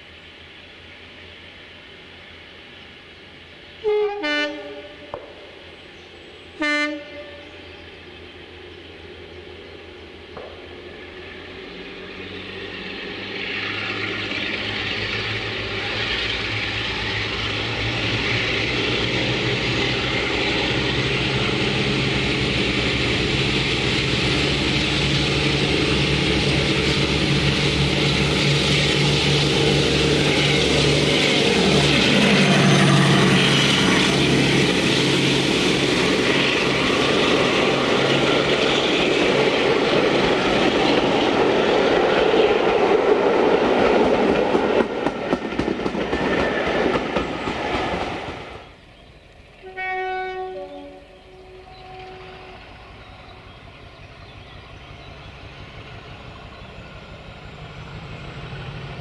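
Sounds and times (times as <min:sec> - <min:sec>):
diesel locomotive engine: 0:00.0 - 0:59.0
rumble of train coaches passing: 0:00.0 - 0:59.0.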